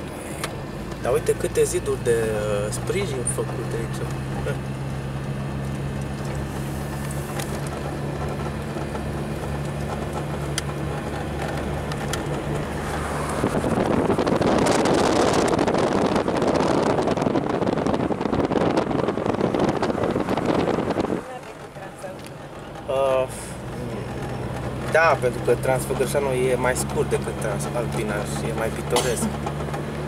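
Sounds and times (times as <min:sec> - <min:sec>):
car engine and road noise: 0:00.0 - 0:30.0
wind buffeting microphone: 0:07.3 - 0:22.5.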